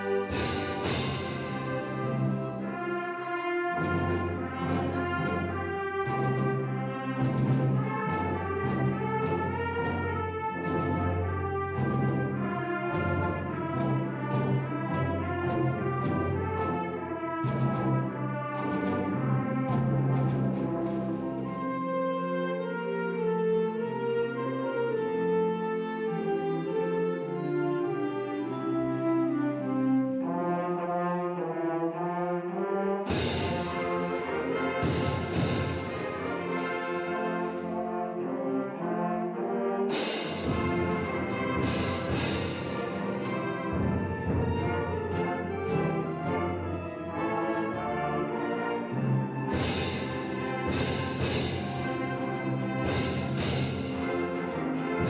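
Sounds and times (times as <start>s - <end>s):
percussion hits: 0.0s - 2.8s, 33.1s - 37.1s, 39.9s - 46.5s, 49.4s - 55.0s
brass band fanfare chords: 0.0s - 24.4s, 30.4s - 55.0s.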